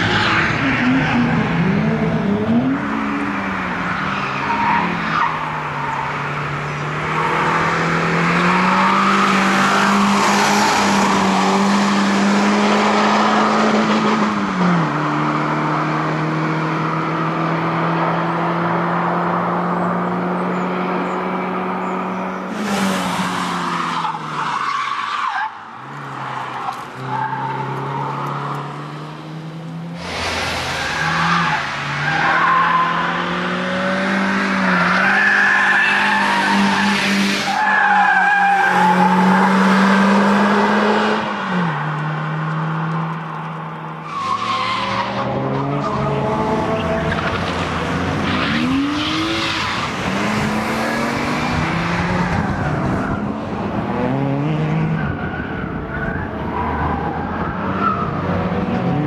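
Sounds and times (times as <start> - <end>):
car engine at high revs: 0.0 - 59.0
tyres squealing and skidding: 2.5 - 13.4, 21.8 - 28.9, 30.0 - 41.9, 43.9 - 53.4, 54.8 - 58.4.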